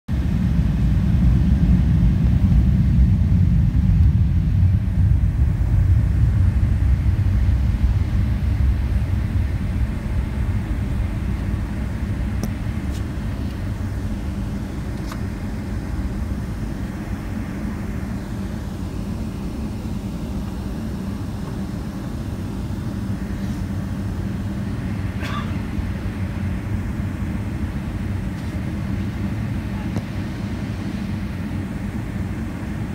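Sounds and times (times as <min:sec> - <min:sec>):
aircraft cabin rumble: 0:00.1 - 0:32.9.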